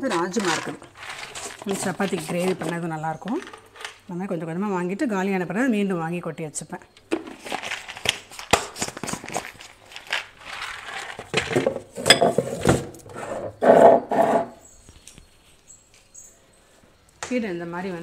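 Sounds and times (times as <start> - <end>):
jars knocking and clicking: 0.0 - 4.0
jars scraping on shelf: 0.0 - 4.0, 9.1 - 14.6.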